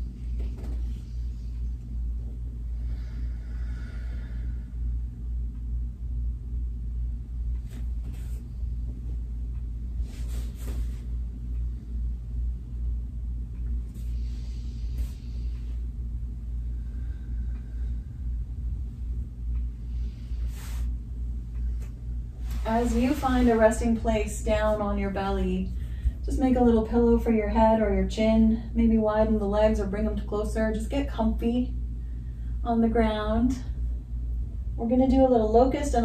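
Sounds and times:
faint hum: 0:00.0 - 0:36.0
steady low rumble: 0:00.0 - 0:36.0
soft hissing: 0:13.9 - 0:15.9, 0:19.8 - 0:24.8.

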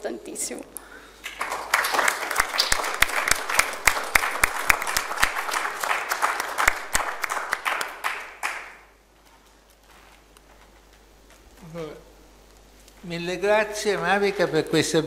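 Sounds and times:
audience applauding: 0:01.2 - 0:08.9.

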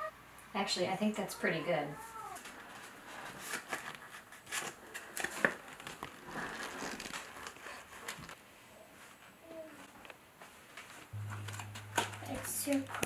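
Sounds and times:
canvas and paper rustling: 0:02.4 - 0:11.1.

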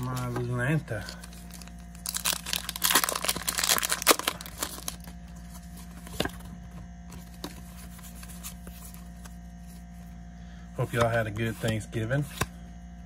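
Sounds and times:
foil wrapper tearing and crinkling: 0:01.0 - 0:05.2.

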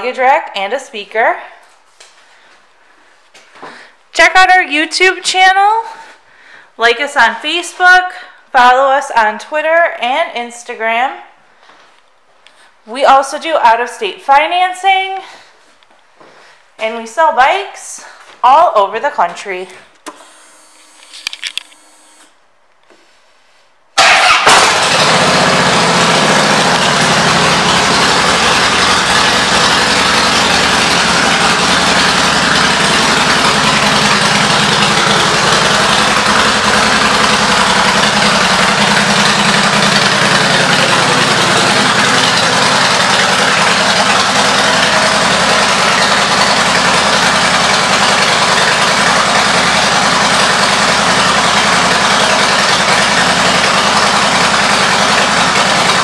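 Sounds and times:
motorcycle engine idling: 0:24.0 - 0:56.0.

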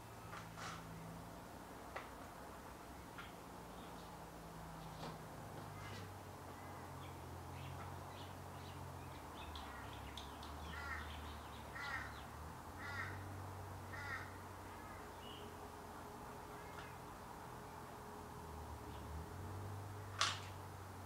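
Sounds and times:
crow cawing: 0:10.7 - 0:11.1, 0:11.7 - 0:12.2, 0:12.8 - 0:13.3, 0:13.9 - 0:14.4.

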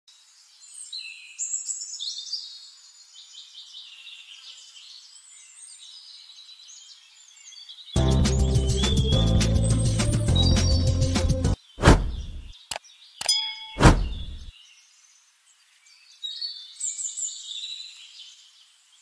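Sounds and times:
small birds chirping: 0:00.1 - 0:19.0
loud music: 0:08.0 - 0:11.6.

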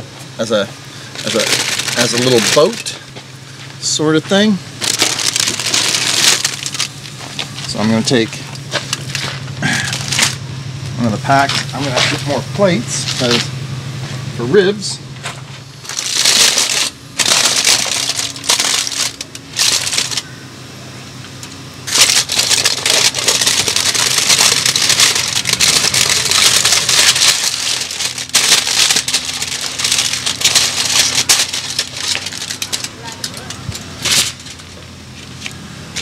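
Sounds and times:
aluminum foil crinkling: 0:01.2 - 0:03.0, 0:04.8 - 0:10.4, 0:15.8 - 0:20.3, 0:21.9 - 0:35.5.

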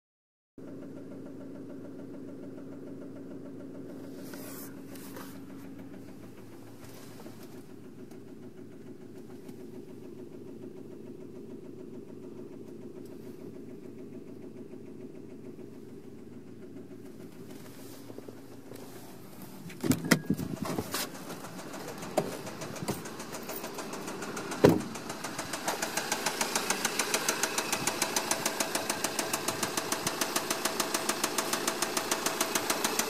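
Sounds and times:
car engine idling: 0:00.6 - 0:33.0
rustling from handling: 0:04.0 - 0:05.7, 0:06.8 - 0:07.6, 0:17.2 - 0:21.2.

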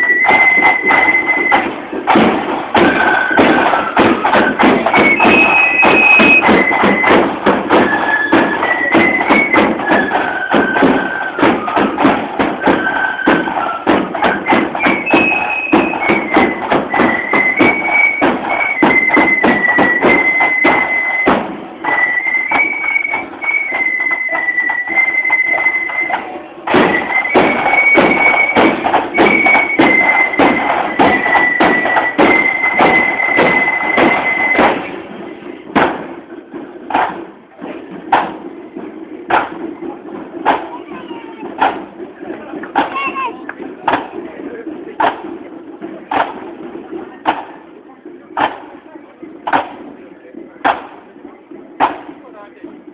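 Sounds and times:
flutes playing melody: 0:00.0 - 0:35.6.

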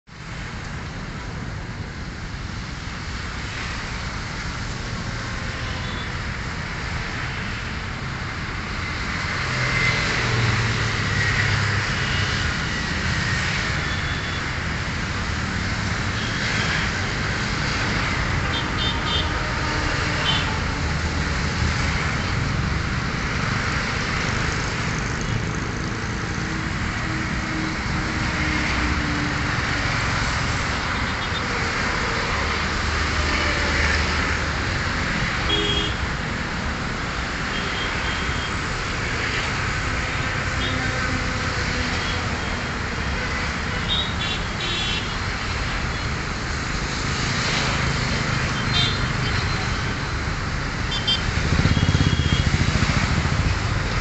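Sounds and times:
distant engine rumble: 0:51.4 - 0:54.0.

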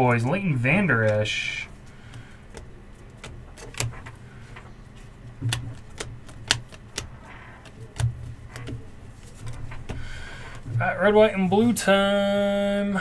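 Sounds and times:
cards clicking and tapping on table: 0:02.0 - 0:04.7, 0:05.3 - 0:10.6.

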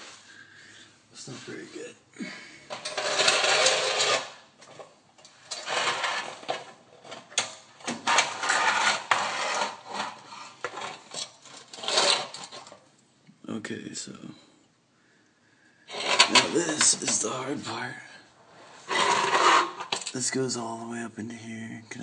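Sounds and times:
phone scraping and rubbing: 0:02.7 - 0:12.8, 0:15.9 - 0:17.2, 0:18.5 - 0:20.1.

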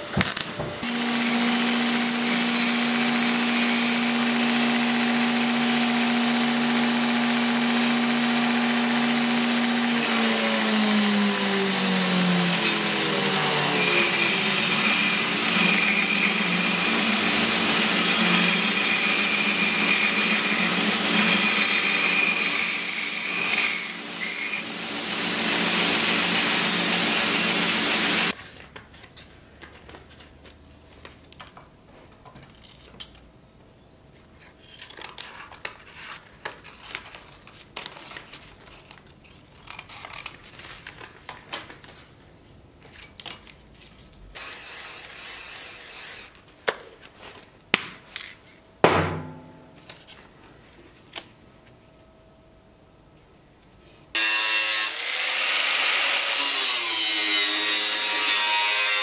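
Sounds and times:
belt grinder grinding metal: 0:00.8 - 0:28.4, 0:54.2 - 0:59.0
paper rustling: 0:34.8 - 0:42.4.

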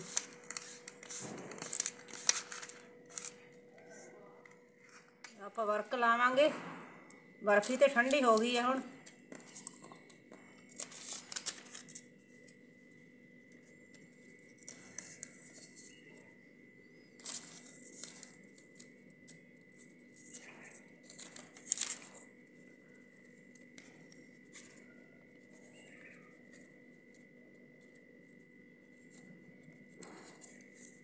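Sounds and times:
thin paper rustling: 0:00.0 - 0:03.4, 0:10.7 - 0:12.0, 0:17.2 - 0:18.9, 0:20.2 - 0:22.2
faint high whine: 0:00.0 - 0:31.0.

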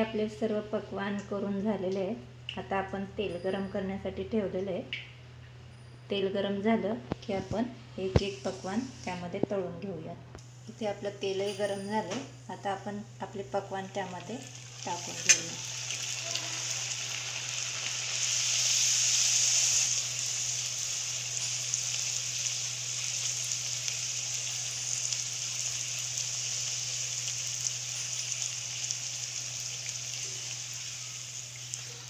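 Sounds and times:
dough deep-frying in oil: 0:10.8 - 0:32.0.

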